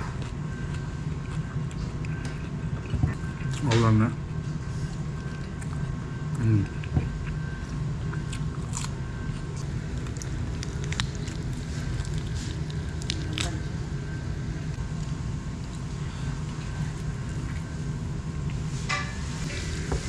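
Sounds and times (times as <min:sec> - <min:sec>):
chewing: 0:00.0 - 0:13.8.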